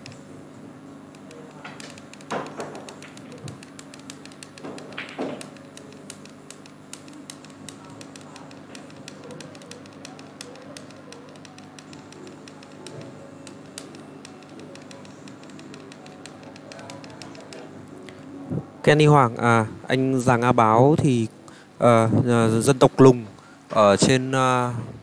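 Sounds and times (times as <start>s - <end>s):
typing on computer keyboard: 1.1s - 17.8s.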